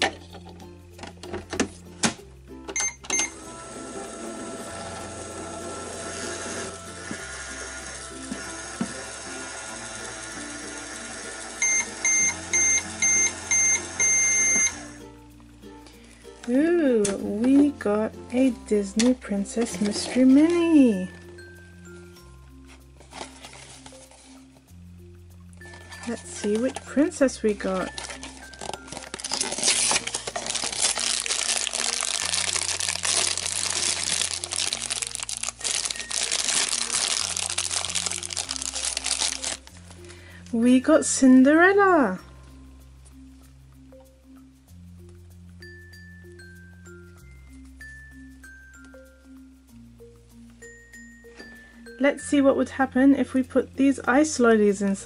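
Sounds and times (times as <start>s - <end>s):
light background music: 0.0s - 55.0s
toy microwave beeping: 2.7s - 15.0s
toy microwave humming: 2.7s - 15.0s
foil bag crinkling: 23.0s - 24.4s, 25.6s - 40.2s.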